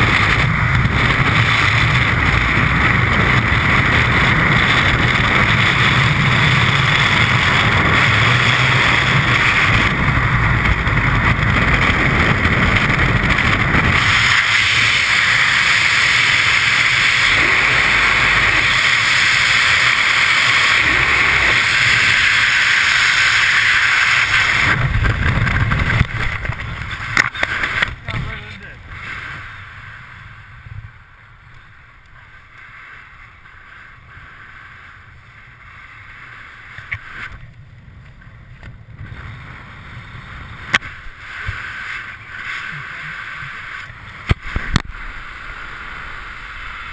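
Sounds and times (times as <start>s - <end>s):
wind rushing over helmet: 0.0s - 32.4s, 33.0s - 46.9s.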